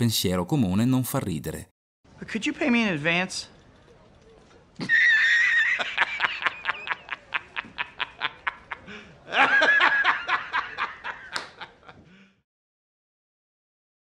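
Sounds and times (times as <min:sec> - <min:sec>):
man laughing uproariously: 0:04.8 - 0:12.1.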